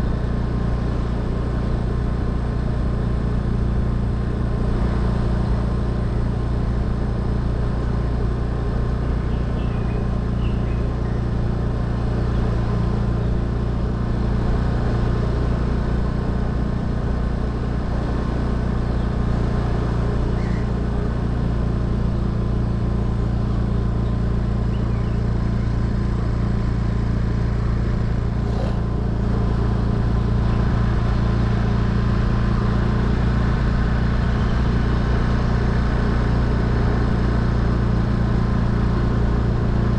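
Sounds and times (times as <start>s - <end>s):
tyre and road noise: 0.0s - 39.9s
vehicle engine cruising: 0.0s - 39.9s.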